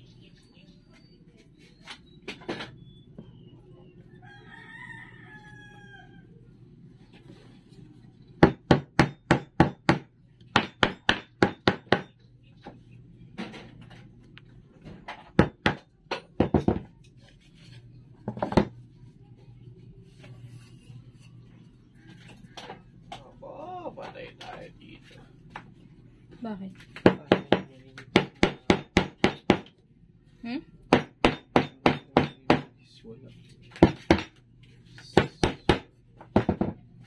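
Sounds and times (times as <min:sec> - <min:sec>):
rooster crowing: 0:04.1 - 0:06.4.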